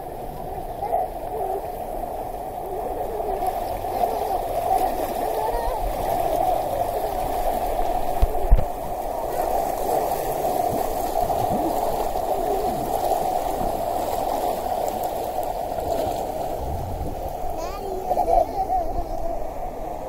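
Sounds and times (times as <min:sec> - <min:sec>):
water jets rushing and splashing: 0:00.0 - 0:20.0.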